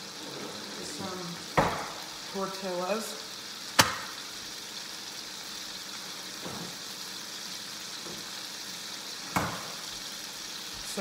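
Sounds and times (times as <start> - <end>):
fish sizzling in a pan: 0.0 - 11.0.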